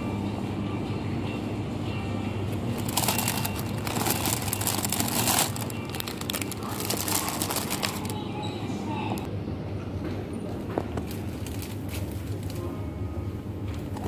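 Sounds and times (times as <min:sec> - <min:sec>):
steady low hum: 0:00.0 - 0:14.0
plastic packets crinkling: 0:02.7 - 0:08.2.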